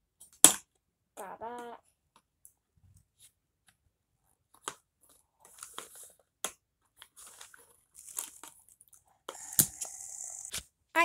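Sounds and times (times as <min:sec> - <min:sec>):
plastic packaging rustling: 0:07.0 - 0:09.0.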